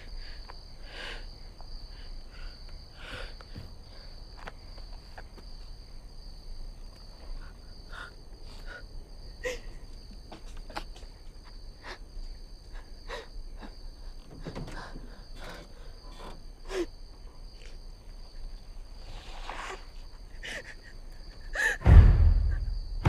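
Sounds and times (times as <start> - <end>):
crickets chirping: 0.0 - 23.0
loud deep hit: 21.8 - 23.0.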